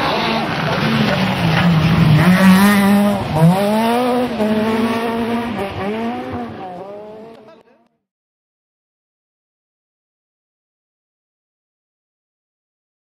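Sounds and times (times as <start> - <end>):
rally car engine revving: 0.0 - 8.0.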